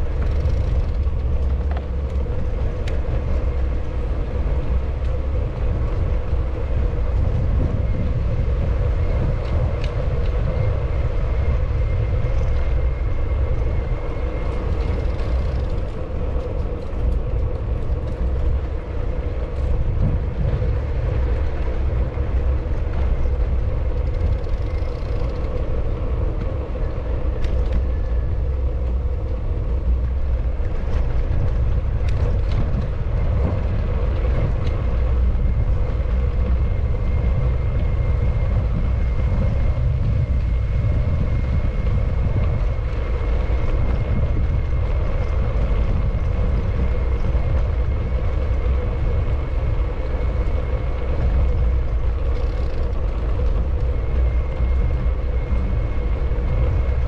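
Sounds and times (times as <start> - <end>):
engine rumbling: 0.0 - 57.0.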